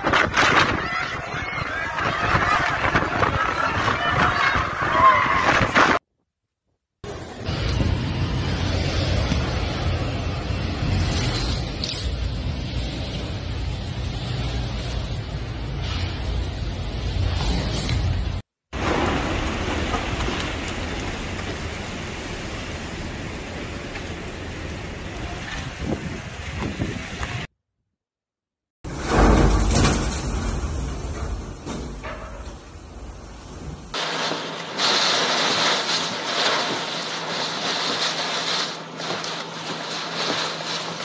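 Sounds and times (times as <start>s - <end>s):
storm wind: 0.0s - 6.0s, 7.0s - 27.5s, 32.7s - 41.0s
heavy rain hissing: 7.0s - 27.5s, 34.0s - 41.0s.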